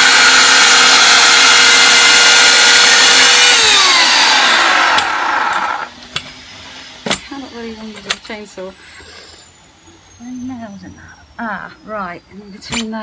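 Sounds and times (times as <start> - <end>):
electric chainsaw cutting wood: 0.0 - 8.2.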